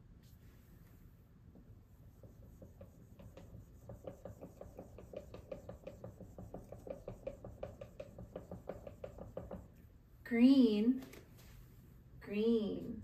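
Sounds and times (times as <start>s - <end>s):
marker squeaking on whiteboard: 2.1s - 9.8s.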